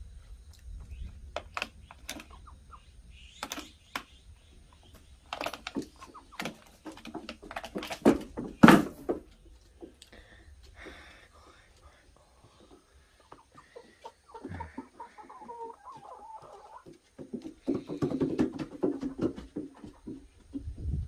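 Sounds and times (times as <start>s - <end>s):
beaks tapping on feeder: 0.9s - 2.5s, 3.3s - 4.2s, 4.8s - 8.8s.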